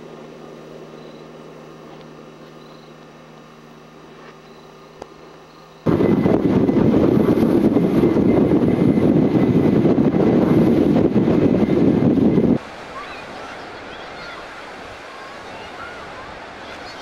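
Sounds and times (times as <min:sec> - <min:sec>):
faint hum: 0:00.0 - 0:17.0
fast-flowing river rushing: 0:12.6 - 0:17.0.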